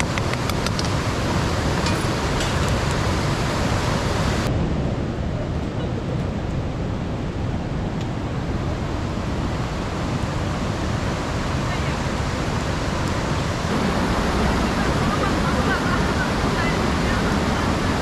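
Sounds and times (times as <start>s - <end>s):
white-water river rushing: 0.0s - 4.5s, 8.6s - 18.0s.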